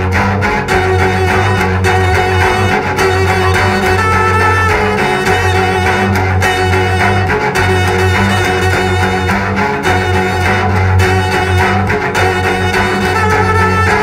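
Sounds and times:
cellos playing heavy metal: 0.0 - 14.0.

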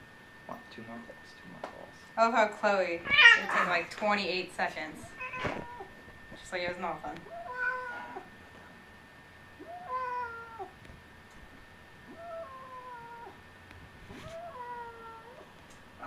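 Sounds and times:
cat meowing: 3.0 - 3.7, 5.1 - 6.0, 7.2 - 8.3, 9.6 - 10.8, 12.1 - 13.4, 14.2 - 15.4.

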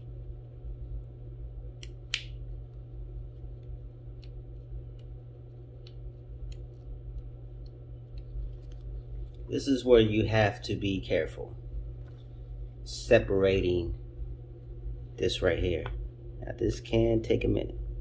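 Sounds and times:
steady low hum: 0.0 - 18.0
paper clicking and crinkling: 5.8 - 9.5.

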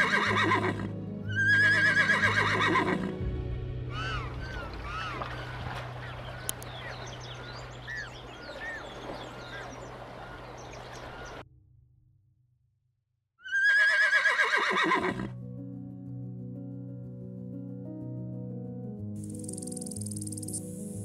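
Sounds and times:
horse whinnying: 0.0 - 3.1, 13.4 - 15.3
soft background music: 0.0 - 10.4, 14.7 - 21.0.

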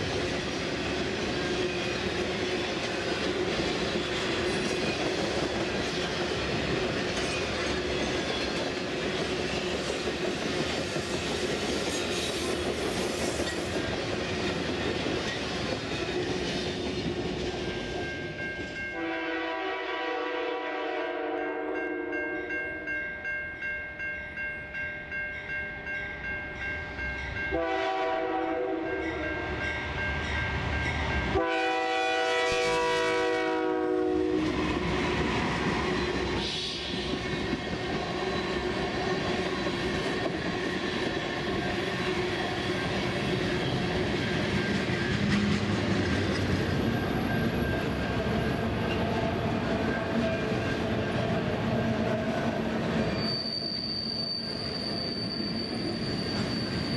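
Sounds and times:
train wheels clattering over rails: 0.0 - 17.9, 34.4 - 52.5
train air horn blasts: 19.0 - 22.3, 27.5 - 29.4, 31.3 - 34.6.

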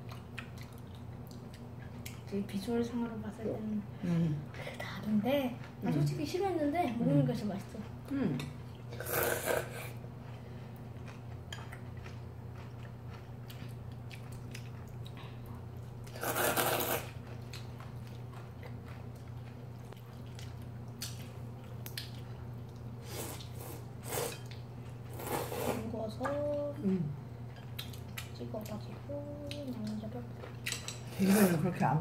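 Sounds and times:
people slurping noodles: 8.9 - 10.0, 16.1 - 17.2, 25.1 - 25.9.

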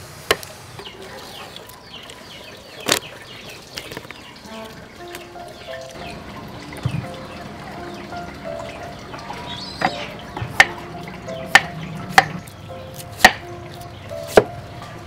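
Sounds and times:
knife chopping crisp vegetables: 9.9 - 14.6.

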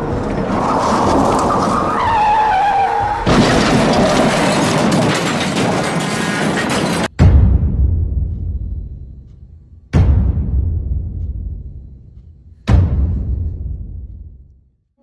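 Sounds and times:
background music: 0.0 - 4.3
tyres screeching: 0.4 - 7.1
car crash with breaking glass: 3.2 - 7.1
deep boom: 7.1 - 12.1, 12.7 - 14.5.

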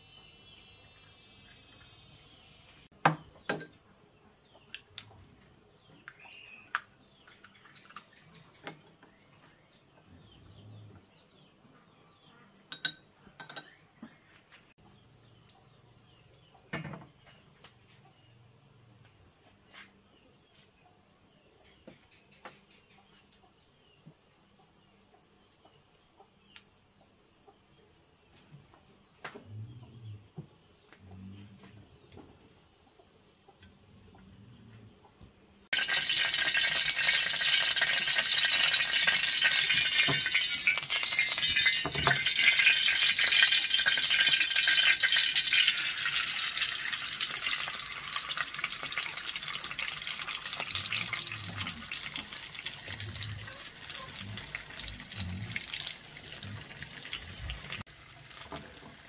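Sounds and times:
crickets trilling: 0.0 - 14.4, 35.7 - 59.0.

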